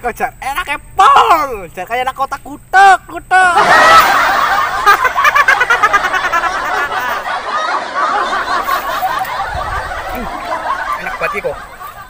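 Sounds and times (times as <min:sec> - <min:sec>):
loud laughter: 0:03.5 - 0:12.0.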